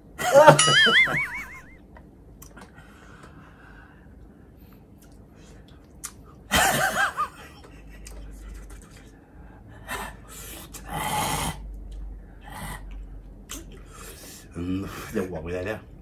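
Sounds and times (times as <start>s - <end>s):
people laughing: 6.5s - 8.5s.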